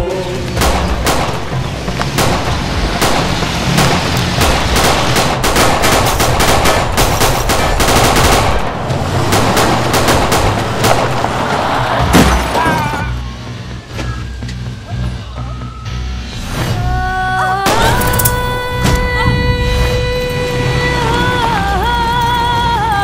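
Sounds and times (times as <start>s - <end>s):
film score music: 0.0s - 23.0s
automatic gunfire: 2.2s - 11.1s.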